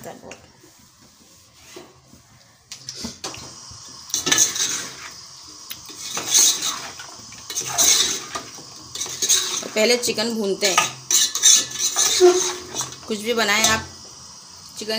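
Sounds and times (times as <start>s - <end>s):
ladle scraping metal pot: 4.1s - 5.2s, 5.9s - 9.8s, 10.7s - 13.8s.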